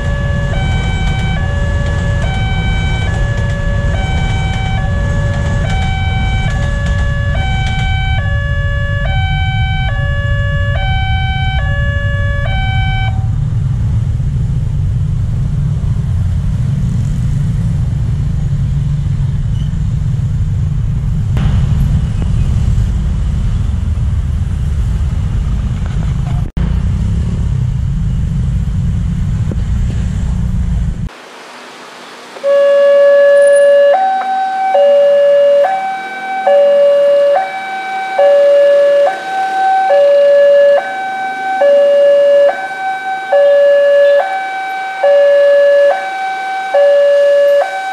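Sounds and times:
two-tone level crossing alarm: 0:00.0 - 0:13.3, 0:32.4 - 0:47.9
motorcycle traffic rumble: 0:00.0 - 0:47.9.

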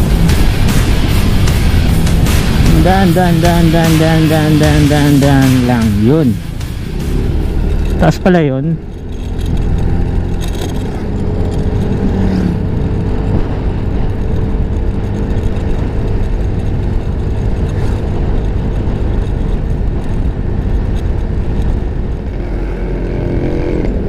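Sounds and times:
motor scooter running: 0:06.8 - 0:24.0
wind rushing over microphone: 0:08.8 - 0:24.0.

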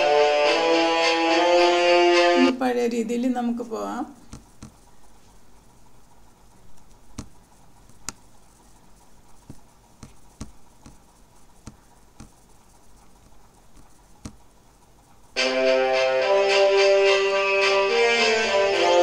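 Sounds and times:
music with violin: 0:00.0 - 0:02.5, 0:15.4 - 0:19.0
faint background hiss: 0:00.0 - 0:19.0
computer mouse clicking: 0:04.2 - 0:15.3.

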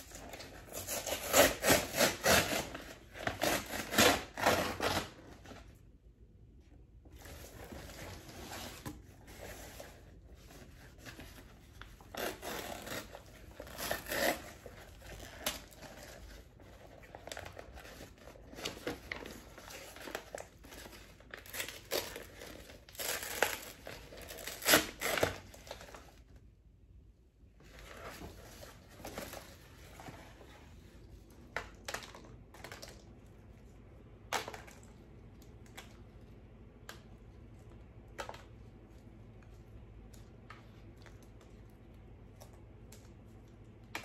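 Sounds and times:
packing paper rustling and crumpling: 0:07.2 - 0:26.2.

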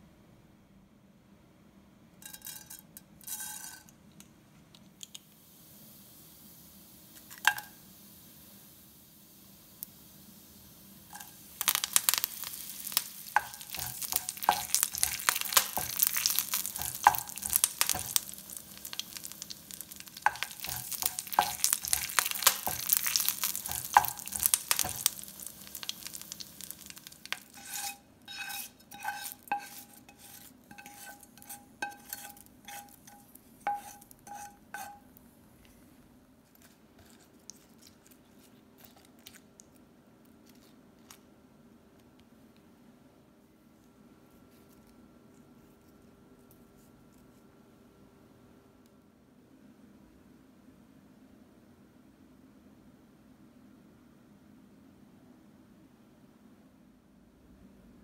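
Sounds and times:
spices crackling in hot oil: 0:05.0 - 0:35.8, 0:36.6 - 0:39.8
kitchen utensils clinking: 0:11.1 - 0:19.3, 0:20.2 - 0:35.0
wooden spatula stirring: 0:11.1 - 0:35.1.

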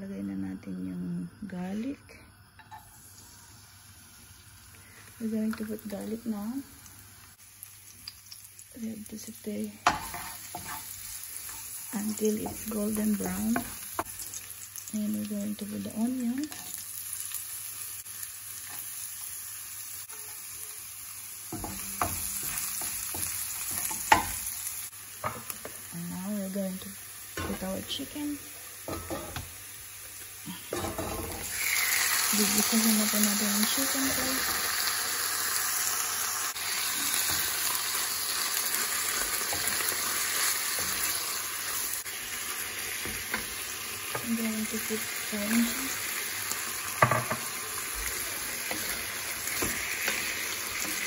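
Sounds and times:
onion sizzling in frying pan: 0:01.1 - 0:51.0
wooden spatula scraping pan: 0:09.9 - 0:11.8.

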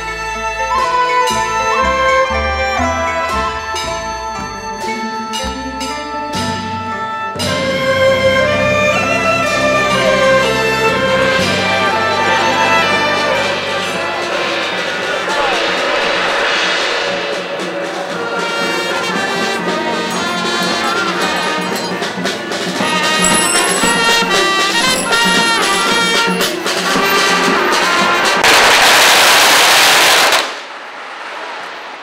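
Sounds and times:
marching band with saxophones: 0:00.0 - 0:30.5
firecrackers crackling: 0:10.8 - 0:32.0.

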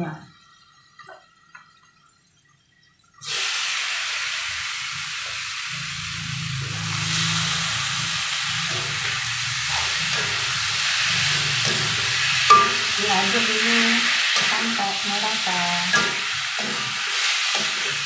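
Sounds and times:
mushrooms sizzling in hot oil: 0:03.2 - 0:18.0
metal spatula stirring in wok: 0:08.4 - 0:15.0, 0:15.8 - 0:18.0.

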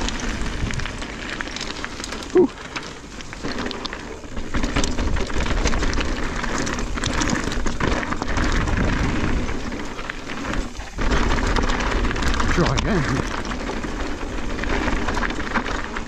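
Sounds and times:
wind buffeting microphone: 0:00.0 - 0:01.1
bike tyres rolling over stones: 0:00.0 - 0:16.0
stones crunching and clicking: 0:00.0 - 0:16.0.

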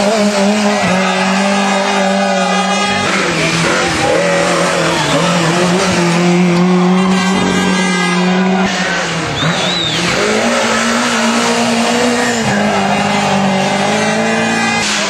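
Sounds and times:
rally car engines revving hard: 0:00.0 - 0:15.0.

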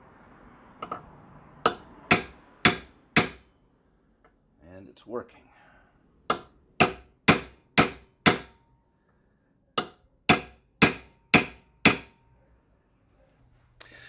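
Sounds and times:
hammer striking metal punch: 0:01.6 - 0:03.5, 0:06.3 - 0:08.6, 0:09.8 - 0:12.2.

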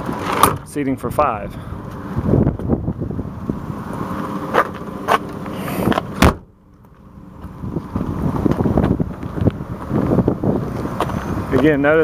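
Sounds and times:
van door slamming: 0:05.8 - 0:06.6.

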